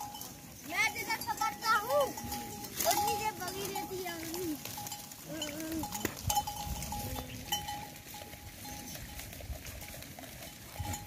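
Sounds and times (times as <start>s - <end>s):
goats bleating: 0.9s - 8.2s.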